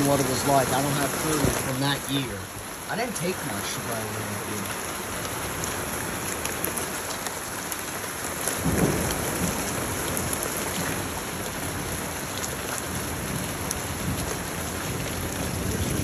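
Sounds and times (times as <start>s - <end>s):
rain falling steadily: 0.0s - 16.0s
thunder rumbling: 8.5s - 12.2s, 12.8s - 16.0s.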